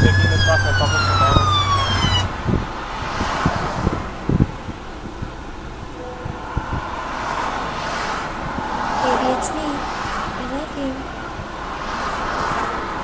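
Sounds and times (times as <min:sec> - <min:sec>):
vehicle siren winding down: 0:00.0 - 0:02.6
wind on microphone: 0:00.0 - 0:08.9
passing freeway traffic: 0:00.6 - 0:13.0.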